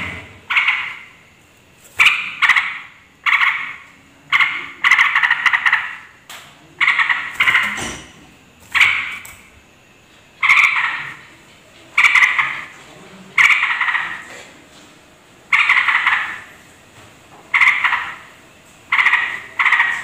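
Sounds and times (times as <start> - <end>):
bird chattering calls: 0.0 - 1.3, 1.9 - 7.9, 8.7 - 9.5, 10.3 - 12.7, 13.4 - 14.3, 15.5 - 16.6, 17.5 - 20.0.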